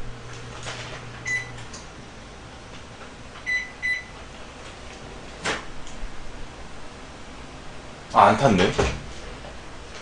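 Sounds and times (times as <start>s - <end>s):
microwave running hum: 0.0s - 10.0s
microwave control panel beeps: 1.2s - 1.8s, 3.4s - 4.2s.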